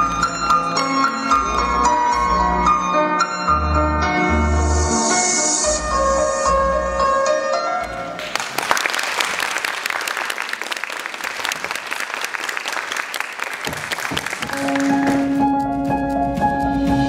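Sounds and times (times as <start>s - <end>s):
audience applause: 8.2s - 15.4s.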